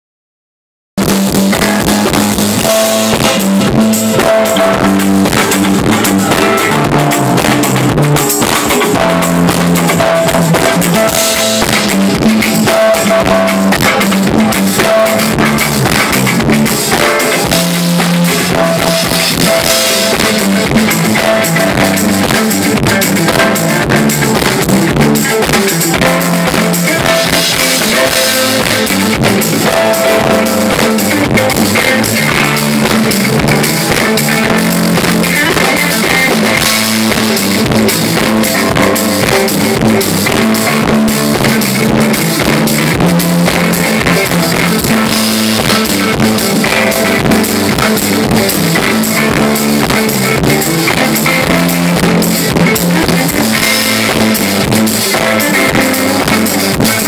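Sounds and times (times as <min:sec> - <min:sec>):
bass line: 0:01.0 - 0:57.0
drum kit: 0:01.0 - 0:57.0
guitar melodic figure: 0:01.0 - 0:57.0.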